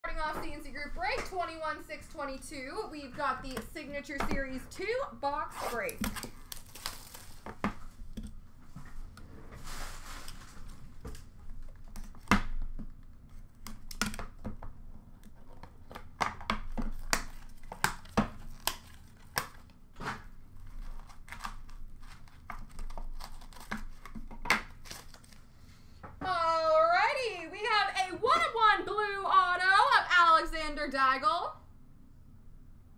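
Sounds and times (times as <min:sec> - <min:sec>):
plastic wrap tearing and crinkling: 0:05.5 - 0:07.8, 0:16.8 - 0:25.5.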